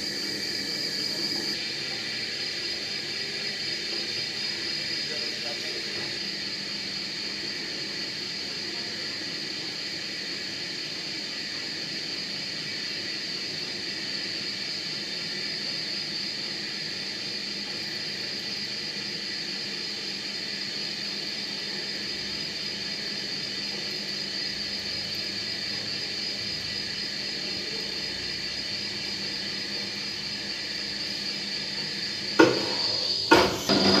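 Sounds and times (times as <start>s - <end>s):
milling machine whining: 0.0s - 13.8s, 14.9s - 34.0s
sharp knocks: 32.4s - 34.0s.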